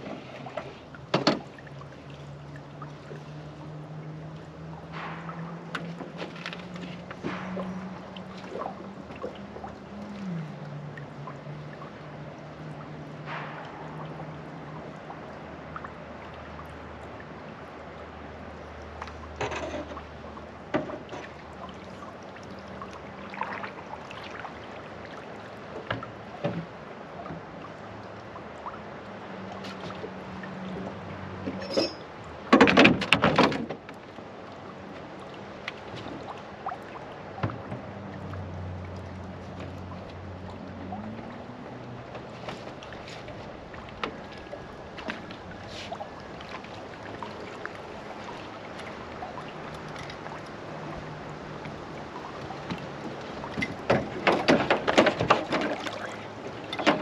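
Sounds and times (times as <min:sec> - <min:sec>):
loud clatter of knocks: 0:32.5 - 0:33.8, 0:53.6 - 0:55.8.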